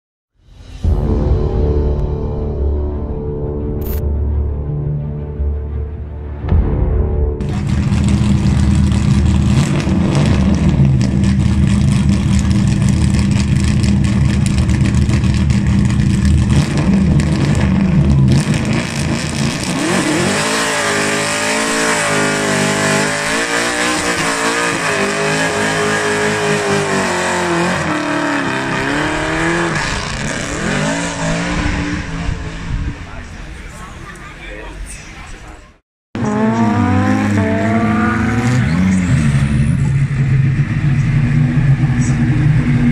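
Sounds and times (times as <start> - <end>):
race car engine revving: 7.4 - 33.4, 36.2 - 42.9.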